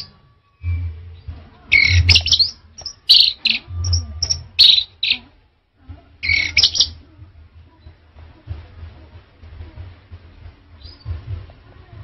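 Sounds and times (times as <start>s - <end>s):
low background rumble: 0.0s - 12.0s
bird whistling phrases: 1.7s - 5.2s, 6.2s - 7.0s.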